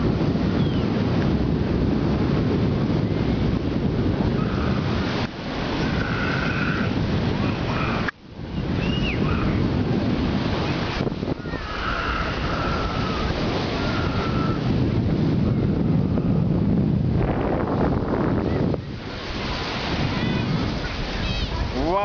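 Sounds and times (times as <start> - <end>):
sea surf on shore: 0.0 - 22.0
wind rumbling on microphone: 0.0 - 22.0.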